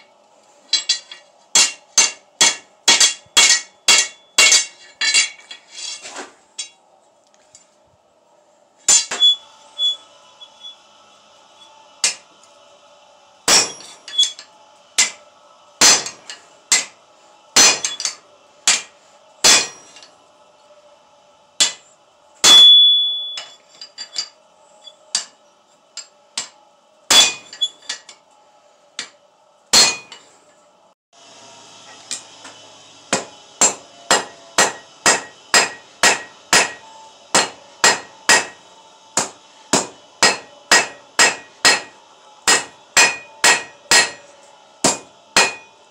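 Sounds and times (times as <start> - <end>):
hammer striking steel on anvil: 0.7 - 6.8, 8.9 - 10.8, 11.6 - 12.4, 13.4 - 17.0, 17.6 - 20.1, 21.6 - 25.4, 26.0 - 28.2, 29.0 - 30.3, 31.8 - 38.6, 39.2 - 45.8.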